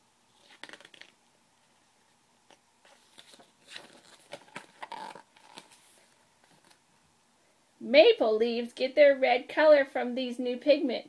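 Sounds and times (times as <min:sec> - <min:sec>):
paper page rustling: 0:00.3 - 0:01.2, 0:02.8 - 0:06.8.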